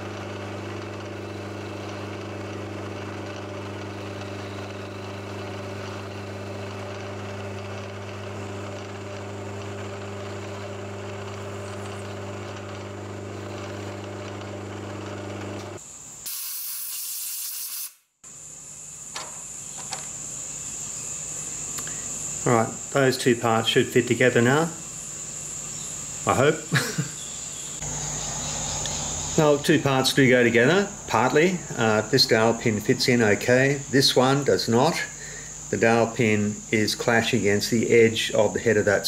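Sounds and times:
milling spindle humming: 0.0s - 15.8s, 18.3s - 39.0s
loud hiss: 15.8s - 38.3s.

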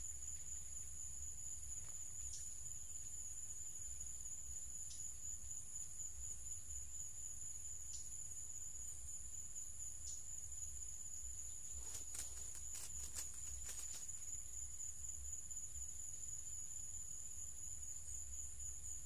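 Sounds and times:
insects droning: 0.0s - 19.0s
clicks and rustles: 11.8s - 14.2s.

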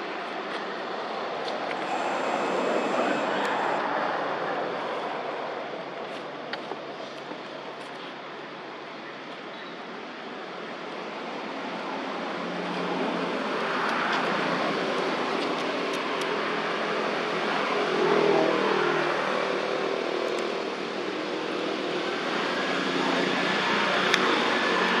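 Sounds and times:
outdoor hiss: 1.7s - 3.9s.

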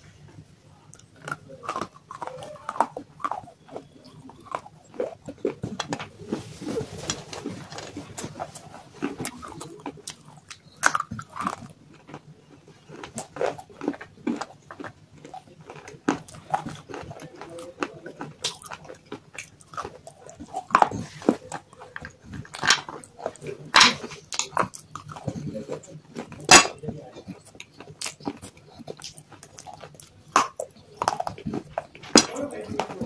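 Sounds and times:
chewing dry clay crunches: 0.0s - 33.0s.

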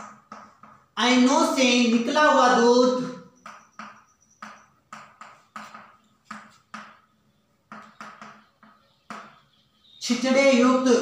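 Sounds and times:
chalk writing on blackboard: 3.4s - 7.0s.

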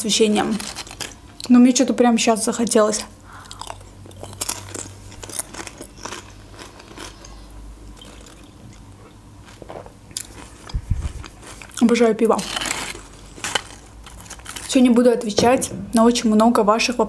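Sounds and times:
crunching potato chip: 0.3s - 1.5s, 3.4s - 15.0s.

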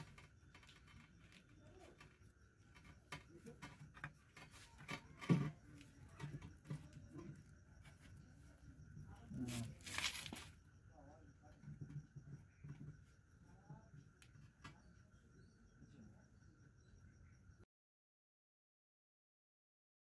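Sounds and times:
rubber liner rubbing and rustling: 9.3s - 10.6s.

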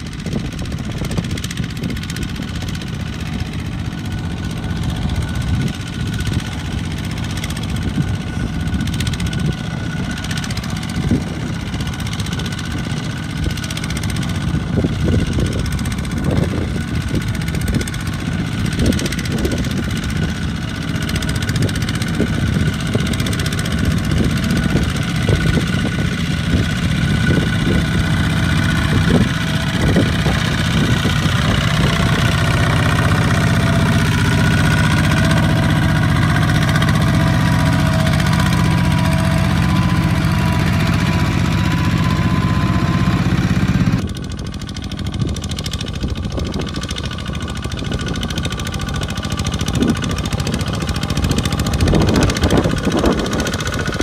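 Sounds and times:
diesel tractor engine chugging: 0.0s - 54.0s.

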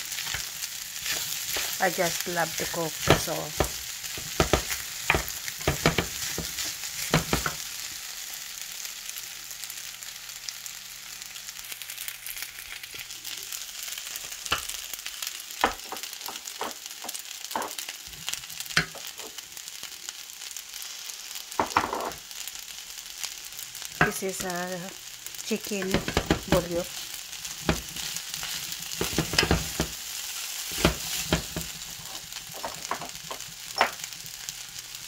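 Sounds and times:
rice sizzling in a pan: 0.0s - 35.0s
wooden spoon scraping a pan: 0.1s - 7.6s, 25.8s - 34.4s.

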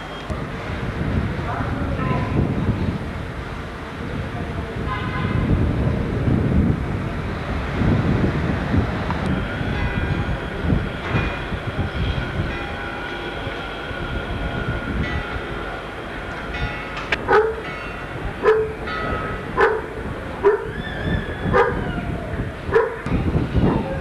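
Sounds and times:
train rumbling: 0.0s - 24.0s
dog barking: 17.3s - 17.6s, 18.4s - 18.8s, 19.6s - 20.7s, 21.5s - 21.9s, 22.7s - 23.1s.

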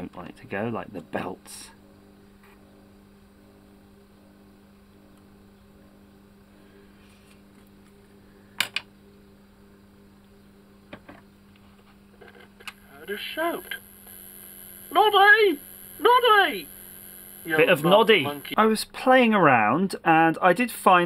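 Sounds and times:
cassette mechanism humming: 12.6s - 18.6s.

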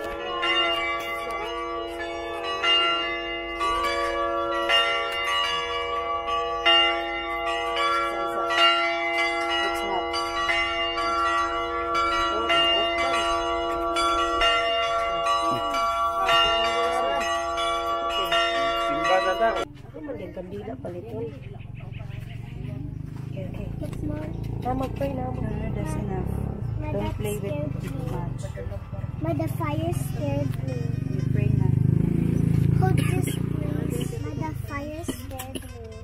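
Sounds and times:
church bells ringing: 0.0s - 19.7s, 21.6s - 36.0s.

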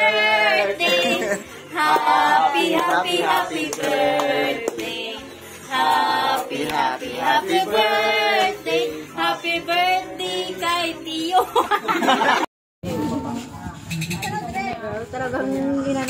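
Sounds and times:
person singing with music: 0.0s - 12.0s.

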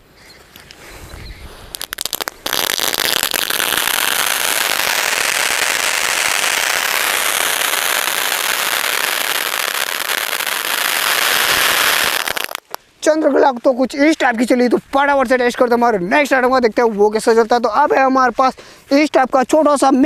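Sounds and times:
firework fountain hissing: 1.4s - 12.8s.

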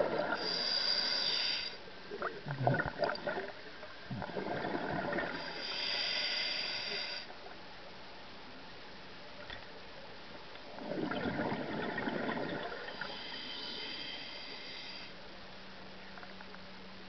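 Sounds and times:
diver's breath bubbling: 4.1s - 7.0s, 10.8s - 14.8s.

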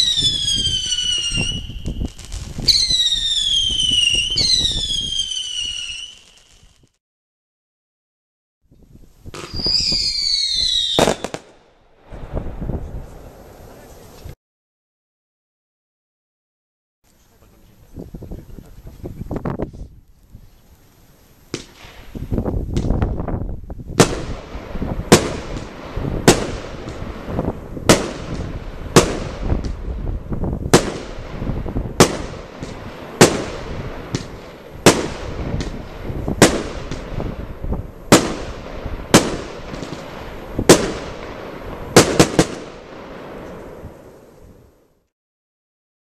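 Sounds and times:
firework bangs: 0.0s - 7.0s, 9.3s - 14.3s, 21.5s - 44.6s
firework launches hissing: 0.0s - 7.0s, 21.2s - 23.1s.

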